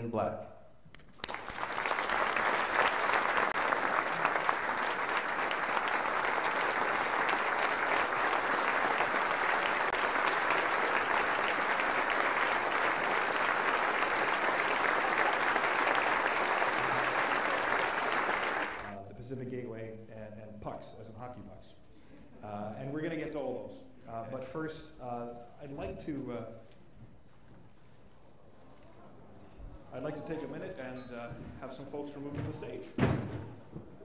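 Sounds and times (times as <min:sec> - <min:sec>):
audience applauding: 0:01.1 - 0:19.0.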